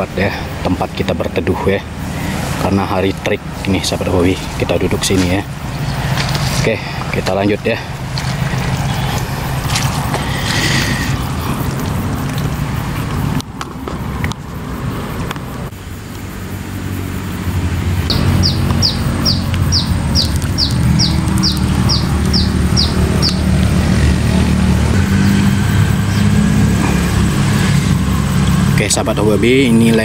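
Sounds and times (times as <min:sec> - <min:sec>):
low motor-like hum: 0:00.0 - 0:14.8, 0:17.3 - 0:30.0
bird calling high notes: 0:18.1 - 0:29.6.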